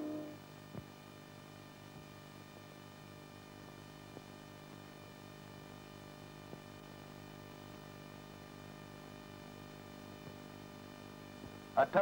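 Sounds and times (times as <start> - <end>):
film soundtrack hum and hiss: 0.0 - 12.0.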